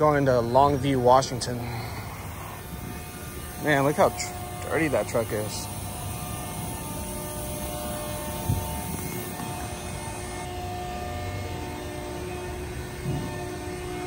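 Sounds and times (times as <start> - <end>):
low mechanical drone: 0.0 - 14.0.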